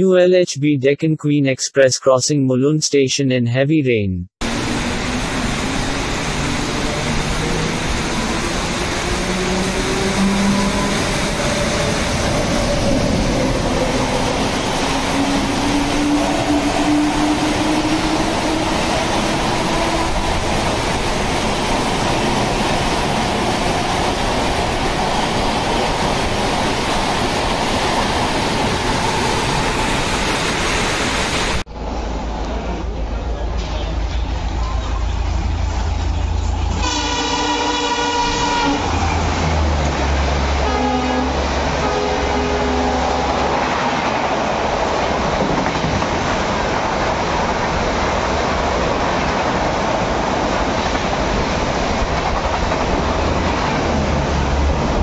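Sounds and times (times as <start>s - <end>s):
heavy rain hissing: 4.4s - 13.0s, 13.6s - 31.6s
train rumbling past: 4.4s - 55.0s.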